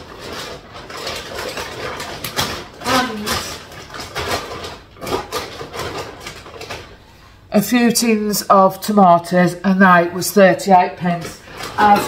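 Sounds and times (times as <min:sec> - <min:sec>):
shopping bag rustling: 0:00.0 - 0:07.0, 0:11.0 - 0:12.0.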